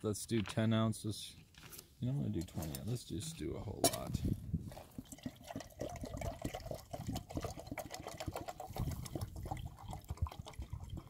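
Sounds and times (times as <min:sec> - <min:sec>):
water pouring into metal pot: 0:04.9 - 0:11.0.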